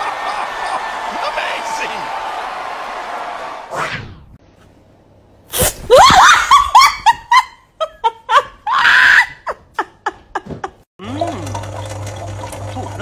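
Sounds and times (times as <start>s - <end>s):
person shrieking and laughing: 5.9s - 10.1s.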